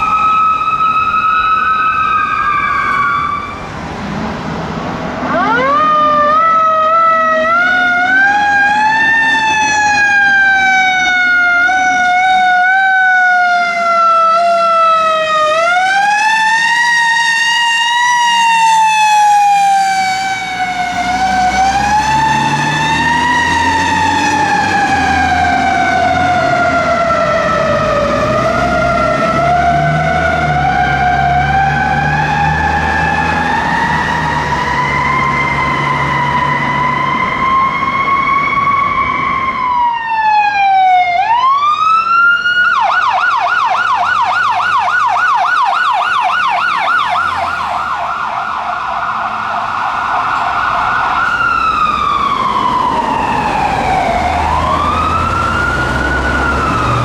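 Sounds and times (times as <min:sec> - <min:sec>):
fire truck siren: 0:00.0 - 0:57.0
diesel engine rumble: 0:46.2 - 0:57.0.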